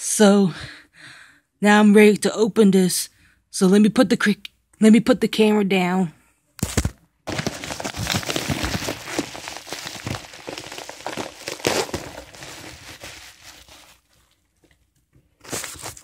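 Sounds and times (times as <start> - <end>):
paper envelope crinkling: 6.6 - 14.8, 15.4 - 16.0.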